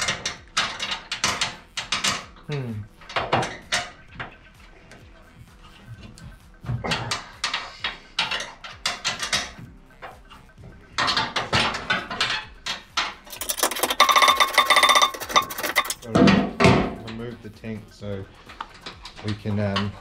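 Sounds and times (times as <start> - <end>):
metal tools clinking on metal: 10.9 - 20.0
ratchet wrench clicking rapidly: 13.2 - 16.1.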